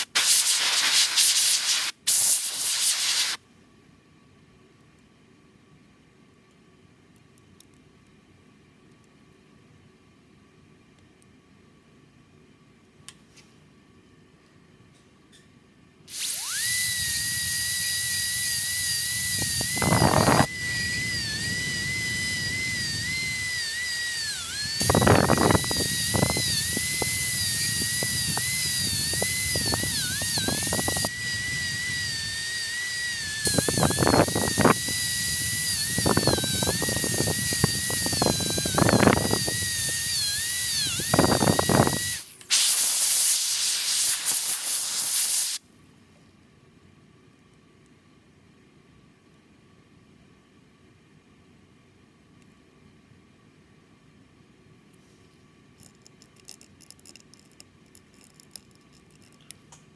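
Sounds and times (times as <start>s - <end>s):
water spray hiss: 0.0s - 3.4s, 42.5s - 45.6s
dental drill whining: 16.1s - 45.6s
drill grinding: 16.1s - 45.6s.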